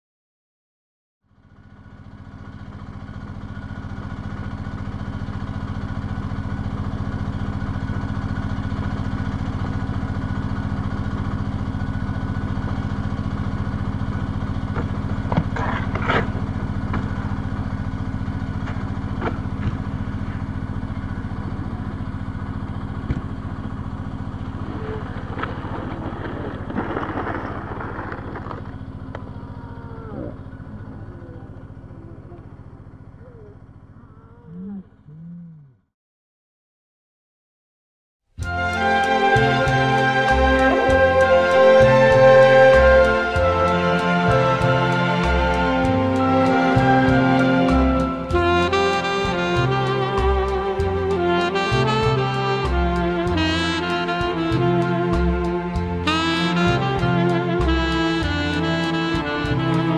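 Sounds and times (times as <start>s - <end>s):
droning hum: 2.3s - 35.3s, 38.4s - 59.9s
short falling glide: 24.7s - 28.9s.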